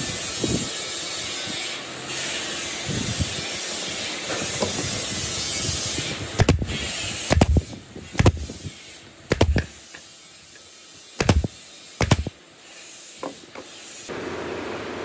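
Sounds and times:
pneumatic nailer shots: 3.9 - 10.1, 11.1 - 12.4.

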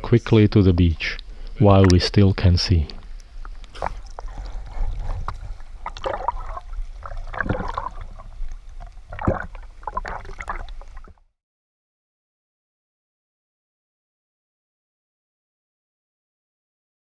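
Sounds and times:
low rumble of moving water: 0.0 - 11.4
water splashing and sloshing: 1.2 - 11.3.

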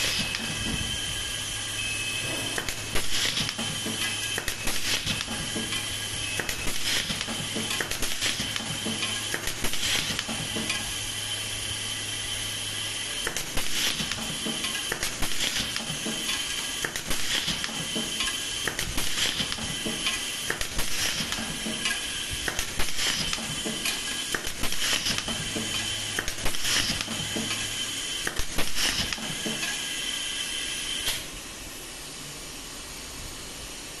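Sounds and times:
compressed air hiss: 12.8 - 31.4.

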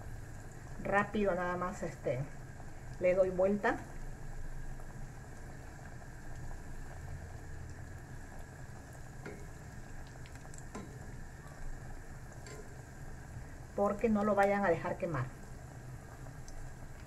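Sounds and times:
deep-frying bubbling sizzle: 0.0 - 17.0
tongs clicking against pot: 9.2 - 11.1, 12.4 - 12.8.

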